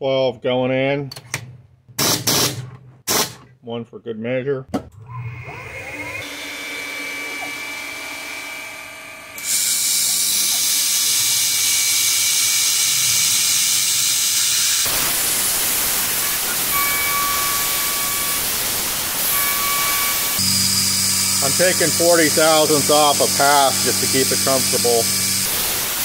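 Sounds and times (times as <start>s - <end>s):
coolant spray hissing: 14.8s - 26.0s
spindle whine: 16.3s - 25.5s.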